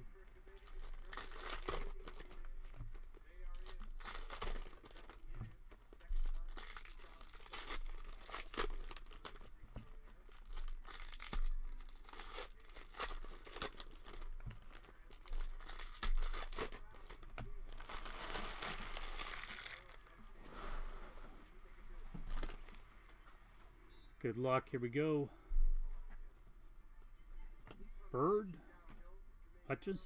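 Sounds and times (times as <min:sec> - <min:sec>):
foil wrappers tearing and crinkling: 0:00.3 - 0:20.2, 0:22.2 - 0:22.8.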